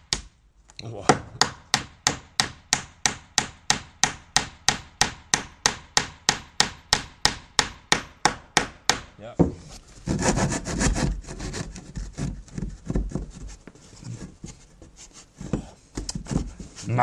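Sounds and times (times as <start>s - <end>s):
hammer driving dowel into wood: 1.1s - 13.3s.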